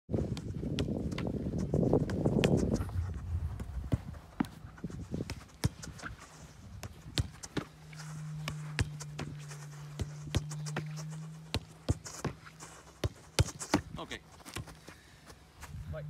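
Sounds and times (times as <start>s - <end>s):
football kicked on artificial turf: 0.1s - 15.0s
low hum: 6.5s - 13.3s.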